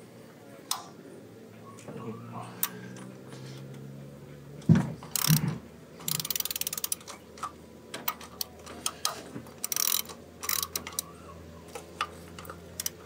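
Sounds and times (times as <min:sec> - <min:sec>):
socket ratchet clicking: 0:05.1 - 0:05.4, 0:06.0 - 0:11.1, 0:12.0 - 0:13.0.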